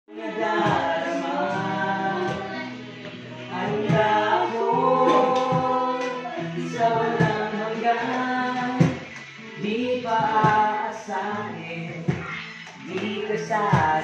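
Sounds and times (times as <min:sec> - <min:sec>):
instrumental accompaniment: 0:00.1 - 0:14.0
person singing long notes: 0:03.5 - 0:09.0.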